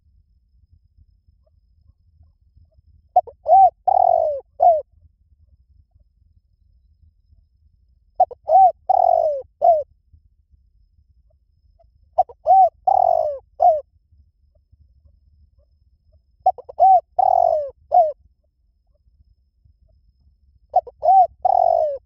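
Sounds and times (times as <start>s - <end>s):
dove cooing: 3.1s - 4.9s, 8.2s - 9.9s, 12.2s - 13.8s, 16.4s - 18.2s, 20.7s - 22.0s.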